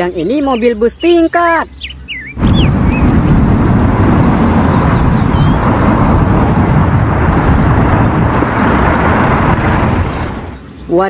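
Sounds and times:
road noise: 0.0 - 11.0
bus engine: 2.4 - 10.9.

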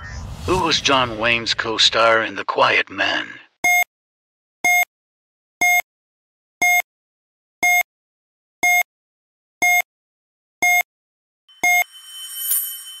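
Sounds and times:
short electronic beeps: 3.6 - 3.9, 4.7 - 4.9, 11.5 - 13.0.

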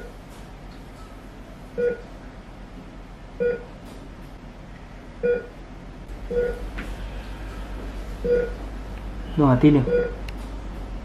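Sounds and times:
low steady hum: 0.0 - 11.0
heart monitor beeps: 1.8 - 2.1, 3.4 - 3.7, 5.2 - 5.5, 6.3 - 6.7, 8.2 - 8.6, 9.8 - 10.2.

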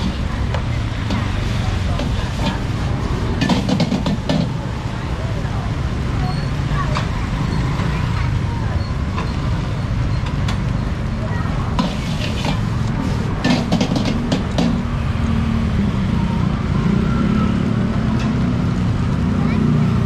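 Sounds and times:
spatula clanking on wok: 3.4 - 4.6.

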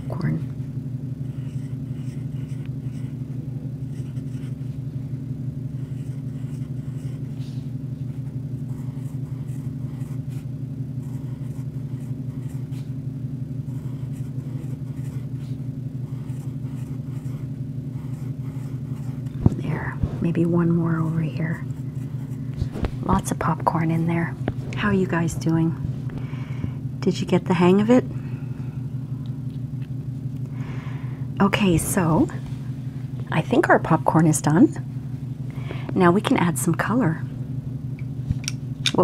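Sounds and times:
steady low hum: 0.0 - 39.0
pencil scratching on paper: 1.3 - 4.7, 5.8 - 7.4, 8.6 - 12.9, 13.7 - 22.8.

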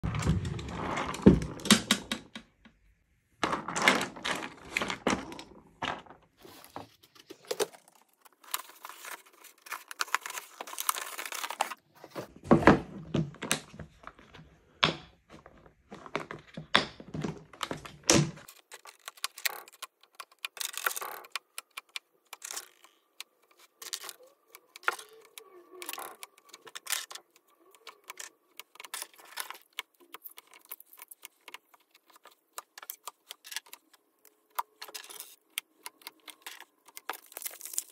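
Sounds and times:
batteries clicking into plastic case: 18.4 - 37.9.

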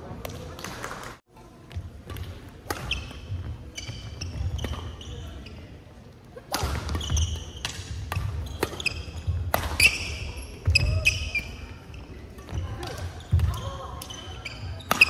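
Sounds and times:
voices in hall: 0.0 - 15.0
racket striking shuttlecock: 2.0 - 3.5, 6.5 - 10.9
shoes squeaking on floor: 2.8 - 5.7, 6.8 - 15.0.

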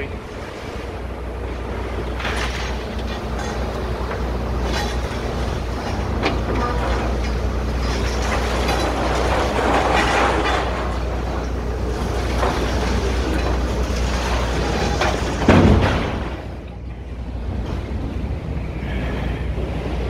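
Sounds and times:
diesel engine rumble: 0.0 - 20.0
debris breaking: 1.9 - 16.8.

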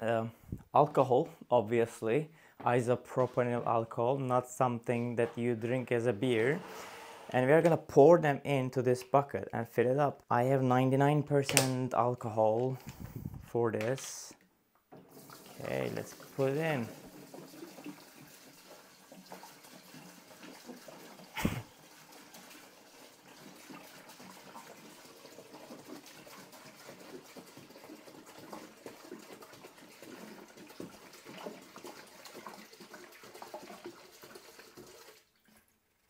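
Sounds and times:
liquid pouring into a bucket: 14.9 - 35.9.

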